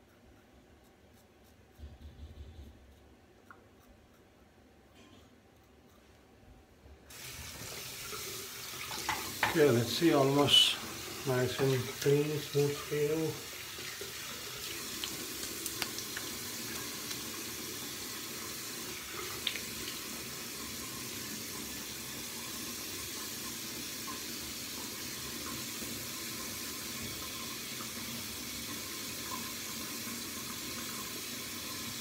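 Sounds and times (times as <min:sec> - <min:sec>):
tap water running into sink: 0:07.1 - 0:32.0.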